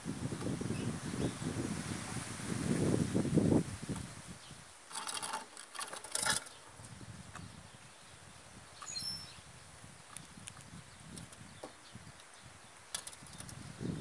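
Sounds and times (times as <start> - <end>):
short high bird chirp: 8.8 - 9.4.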